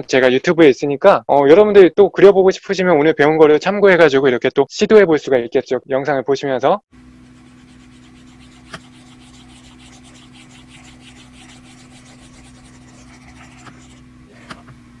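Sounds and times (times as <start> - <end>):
low steady hum: 7.0 - 15.0
pencil scribbling on paper: 7.2 - 14.0.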